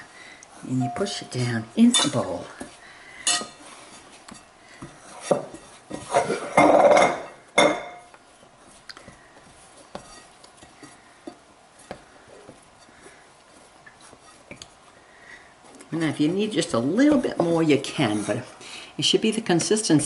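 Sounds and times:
glass bowl knocking and clinking: 6.2s - 8.1s.

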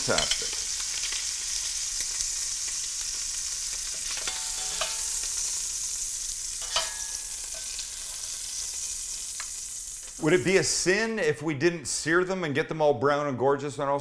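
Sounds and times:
oil and fat sizzling: 0.0s - 11.2s
metal tongs clicking: 3.9s - 5.4s, 6.6s - 7.8s.

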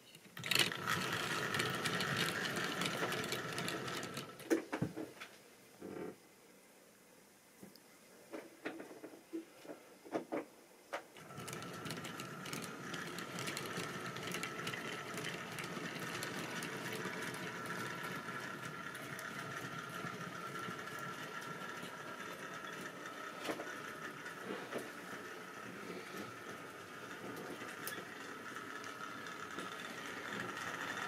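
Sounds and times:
model train wheels clattering: 0.0s - 5.3s, 11.2s - 31.0s
small electric motor whine: 11.2s - 31.0s.

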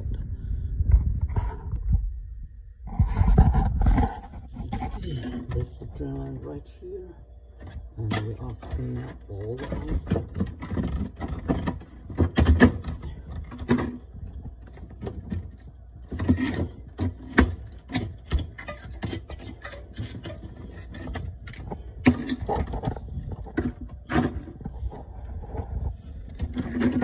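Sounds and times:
ice knocking and clattering: 7.6s - 25.0s, 25.6s - 27.0s.

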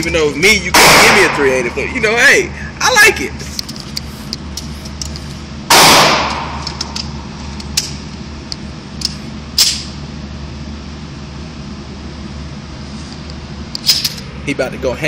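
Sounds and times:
steady low hum: 0.0s - 15.0s
sharp crack: 0.7s - 1.8s, 5.7s - 7.0s
pistol shot ringing indoors: 0.8s - 1.6s, 5.7s - 7.0s.

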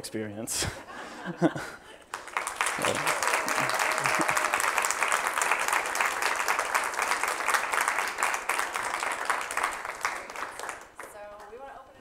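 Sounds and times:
audience applauding: 2.1s - 11.2s.

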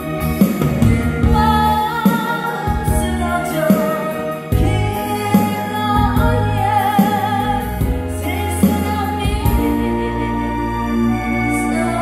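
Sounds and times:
backing accompaniment: 0.0s - 12.0s
person singing slow ballad: 0.0s - 12.0s.

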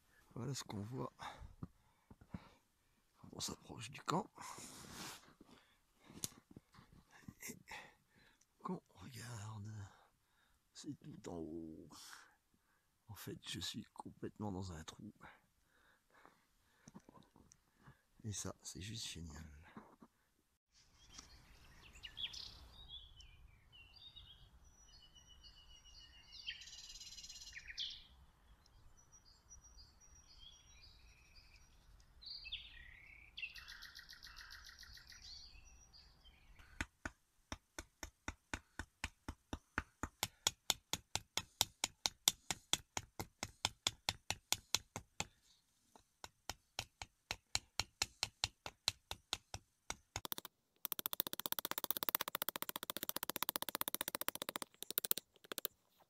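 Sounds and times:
small birds chirping: 20.9s - 36.8s, 50.1s - 55.8s.

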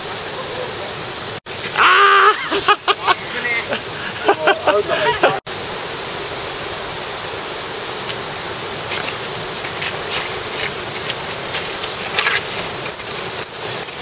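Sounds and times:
forest background hiss: 0.0s - 14.0s
bike tyres clattering over rocks: 7.7s - 14.0s.

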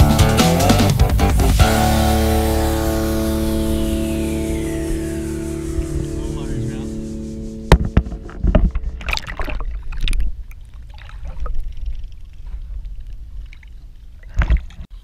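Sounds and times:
muffled underwater churning: 4.7s - 14.8s
water splashing and sloshing: 7.7s - 14.9s.

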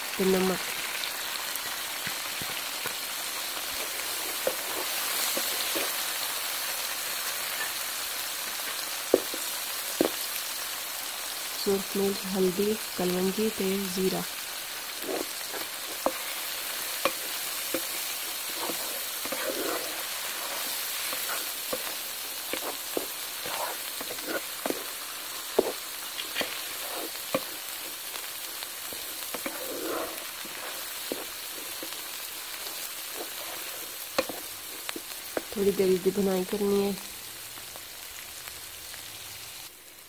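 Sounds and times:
onions sizzling in hot oil: 0.0s - 40.0s
wooden spoon scraping a metal pan: 15.0s - 35.6s.

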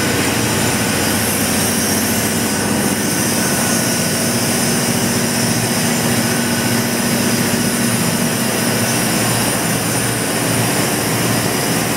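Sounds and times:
compressor mechanical hum: 0.0s - 11.9s.

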